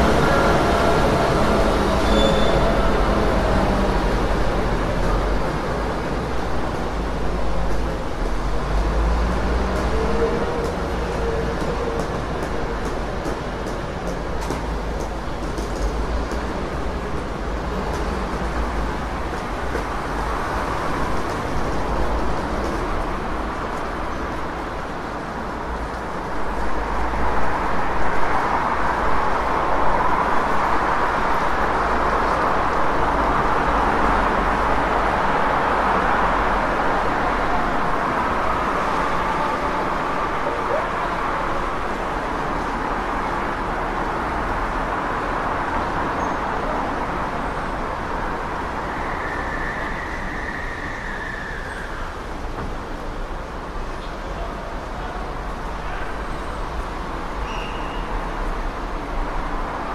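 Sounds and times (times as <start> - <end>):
passing vehicles traffic: 0.0 - 59.9.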